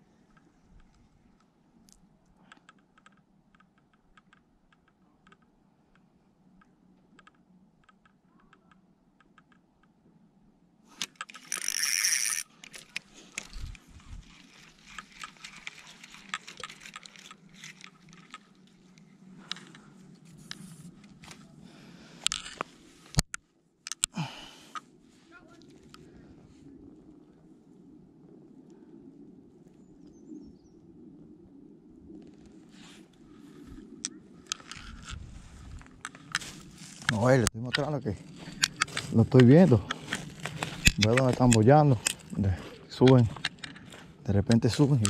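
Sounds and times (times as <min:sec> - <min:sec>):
fishing reel clicks: 0:11.0 - 0:13.8
footsteps crunching through dry grass: 0:35.2 - 0:44.2.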